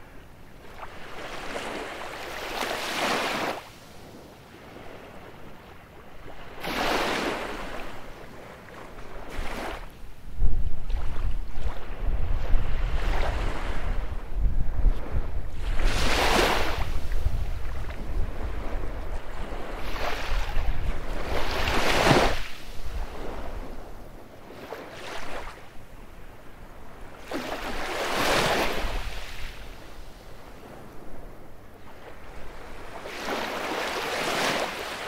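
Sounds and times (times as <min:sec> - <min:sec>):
waves breaking on beach: 0:00.0 - 0:10.0, 0:10.8 - 0:25.7, 0:27.1 - 0:31.2, 0:31.8 - 0:35.0
low wind rumble on microphone: 0:07.4 - 0:24.6.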